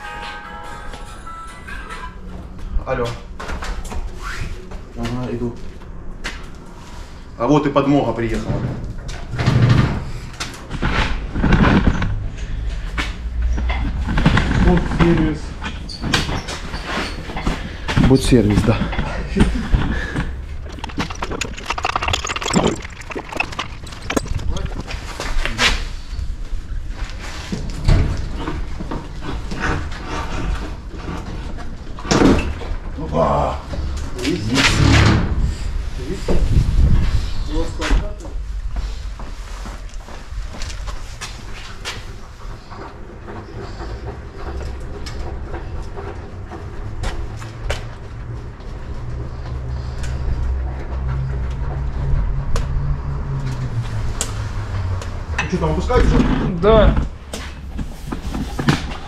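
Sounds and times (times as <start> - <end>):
metal parts clanking and rattling: 8.2 - 26.1.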